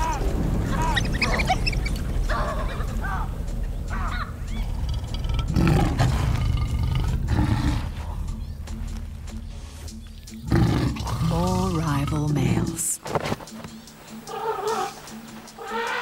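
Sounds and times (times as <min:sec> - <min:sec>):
wild dogs chirping: 0:00.8 - 0:08.7, 0:09.9 - 0:11.4, 0:13.8 - 0:16.0
lion roaring and growling: 0:04.6 - 0:08.3, 0:10.4 - 0:11.4.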